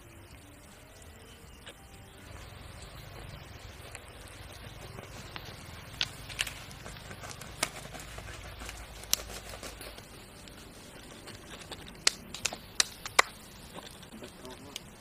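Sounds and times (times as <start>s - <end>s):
low steady rumble: 0.0s - 15.0s
knife scraping charred skin: 4.6s - 14.9s.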